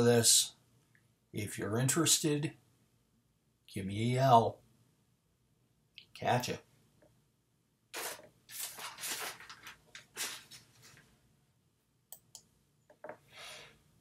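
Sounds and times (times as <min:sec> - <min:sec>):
paper rustling: 0:08.0 - 0:11.1.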